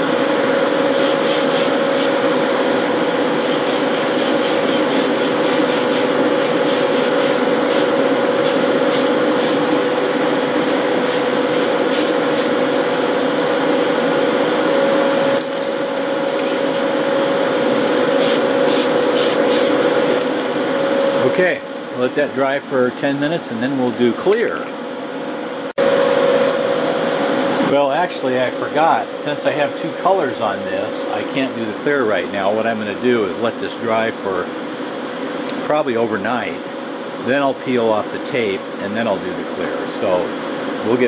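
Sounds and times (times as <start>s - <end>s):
exhaust fan humming: 0.0s - 41.0s
spray paint can hissing: 1.0s - 2.1s, 3.4s - 9.6s, 10.6s - 12.6s, 16.4s - 17.0s, 18.2s - 19.8s.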